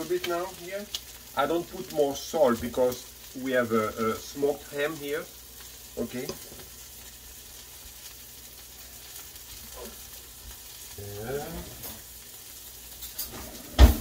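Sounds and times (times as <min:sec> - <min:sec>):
batter sizzling in a pan: 0:00.0 - 0:14.0.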